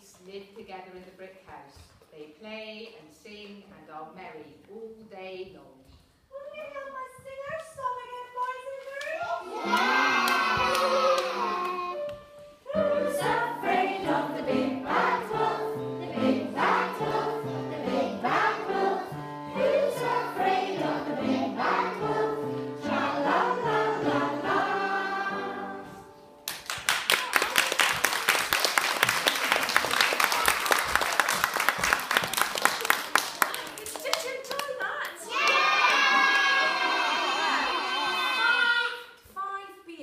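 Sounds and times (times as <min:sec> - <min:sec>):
children singing: 0:09.4 - 0:12.1, 0:12.7 - 0:26.2
applause: 0:09.7 - 0:11.8, 0:26.5 - 0:36.7.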